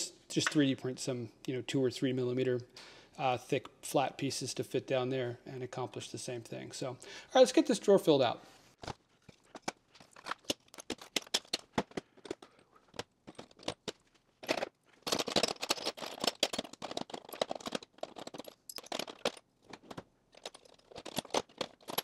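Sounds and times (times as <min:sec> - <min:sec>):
small metal tools clinking: 0:13.3 - 0:22.0.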